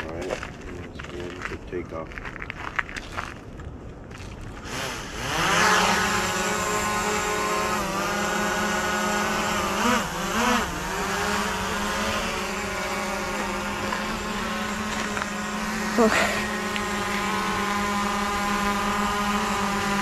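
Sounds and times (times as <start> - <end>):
drone propellers buzzing: 4.4 - 20.0.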